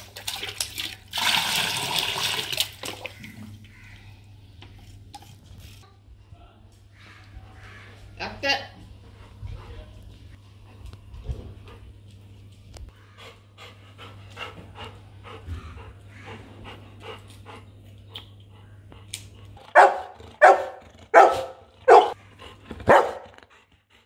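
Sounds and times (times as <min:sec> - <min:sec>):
dog panting: 0:08.8 - 0:12.3, 0:12.9 - 0:24.0
dog barking loudly: 0:19.7 - 0:22.2, 0:22.8 - 0:23.3.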